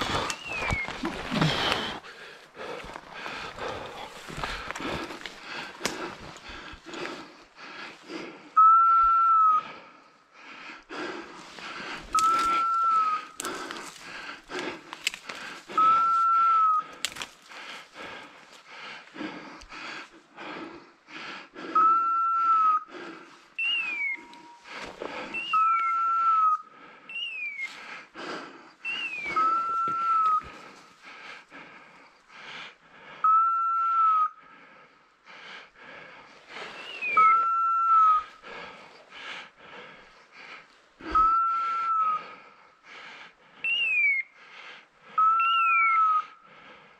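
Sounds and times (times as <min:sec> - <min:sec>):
footsteps through dry brush: 0:00.0 - 0:07.2, 0:11.4 - 0:18.7.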